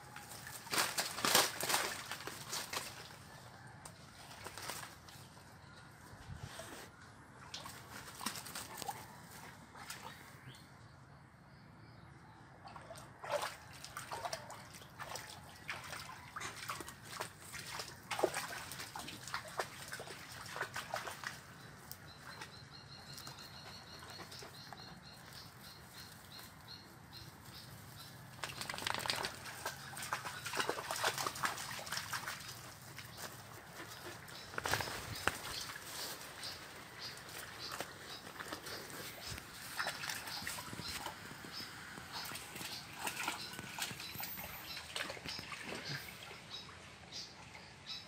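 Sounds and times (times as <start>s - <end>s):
dogs splashing through water: 0.1s - 3.5s, 7.4s - 10.4s, 12.6s - 26.4s, 27.2s - 47.2s.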